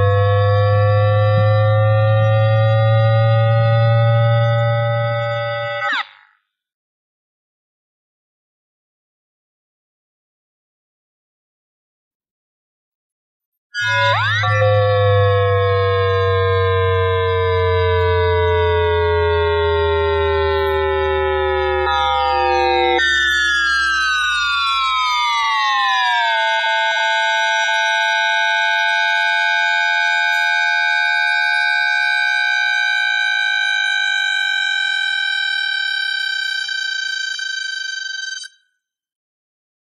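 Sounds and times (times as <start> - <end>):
electric tones sliding down: 0.0 - 6.1, 13.8 - 36.7
steady high whine: 17.5 - 25.6.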